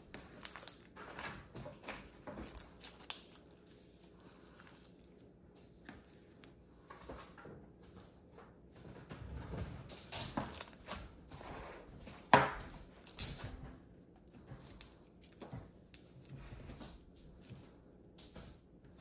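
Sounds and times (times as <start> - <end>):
slime squished by hand: 0.0 - 6.6, 10.4 - 13.6.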